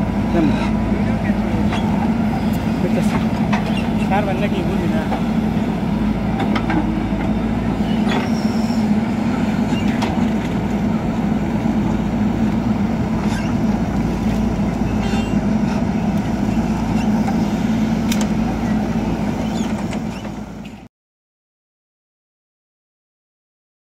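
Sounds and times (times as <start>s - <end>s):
diesel engine running: 0.0s - 20.9s
sharp clanks and knocks: 3.0s - 3.9s.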